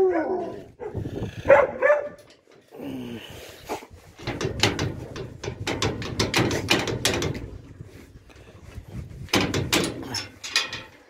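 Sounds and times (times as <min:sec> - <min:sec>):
metal gate bolt latch rattling: 0:01.5 - 0:02.7, 0:04.2 - 0:07.8, 0:09.3 - 0:11.0
quick knocks: 0:04.2 - 0:07.6.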